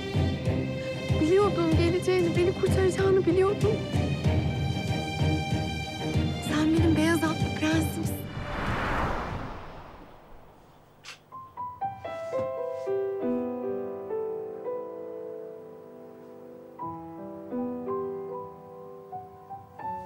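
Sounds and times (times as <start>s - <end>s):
swell of noise: 8.1s - 10.9s
soft slow piano music: 11.3s - 20.0s.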